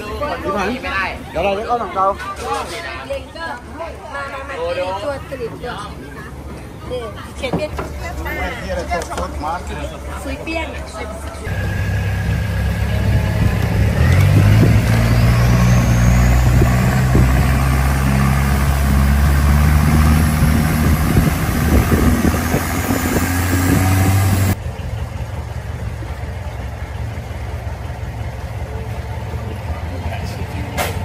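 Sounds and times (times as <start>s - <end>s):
motorboat engine revving: 11.5s - 24.6s.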